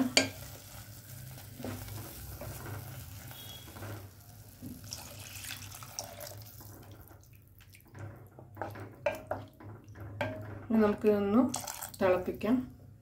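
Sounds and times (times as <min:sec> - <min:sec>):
water splashing into a pan: 0:03.4 - 0:10.5, 0:11.5 - 0:12.0.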